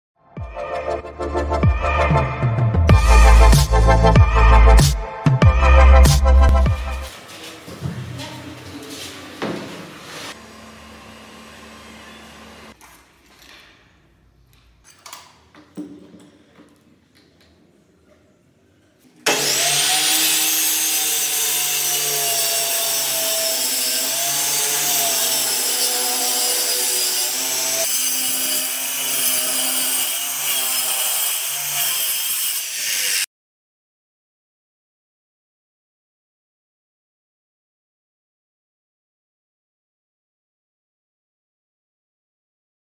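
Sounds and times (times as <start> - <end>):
circular saw cutting board: 9.4 - 12.8, 19.3 - 33.3.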